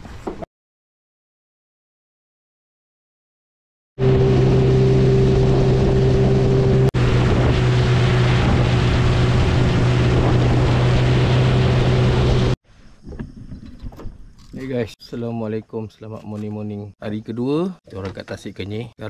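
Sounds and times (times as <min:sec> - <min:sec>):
wind rushing: 0:04.0 - 0:13.6
motorboat engine humming: 0:04.0 - 0:14.3
water noise: 0:04.0 - 0:16.5.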